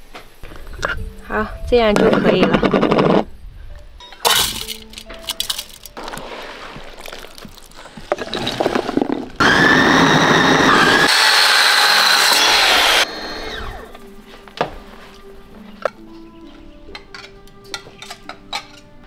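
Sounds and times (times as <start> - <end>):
rustling: 4.3 - 9.4
electric food chopper motor whine: 9.4 - 14.0.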